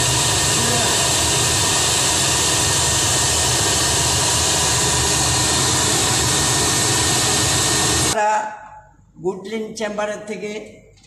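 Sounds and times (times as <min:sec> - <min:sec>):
machine fan rushing: 0:00.0 - 0:08.2.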